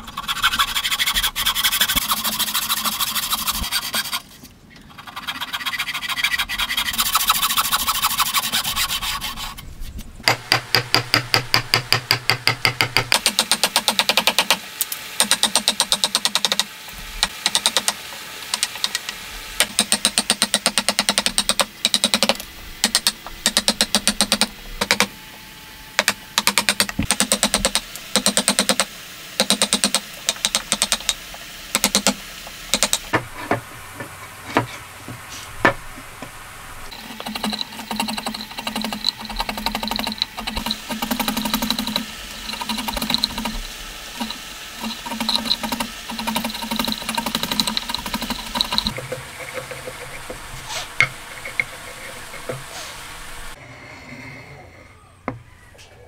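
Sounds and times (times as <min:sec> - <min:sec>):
chisel scraping wood: 0:00.0 - 0:09.6, 0:36.9 - 0:43.5, 0:44.2 - 0:52.9
hammer tapping chisel: 0:10.3 - 0:14.6, 0:15.2 - 0:16.7, 0:17.4 - 0:25.1, 0:26.0 - 0:33.6.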